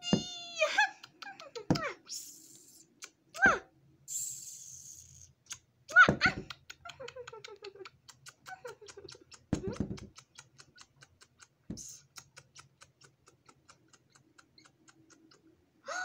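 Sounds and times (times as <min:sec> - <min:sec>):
rapid regular ticking: 0:10.1 - 0:15.5.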